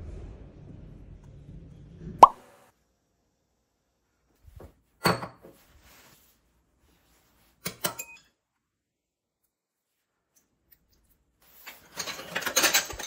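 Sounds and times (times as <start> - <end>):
metal spoon clinking on glass: 7.7 - 8.4.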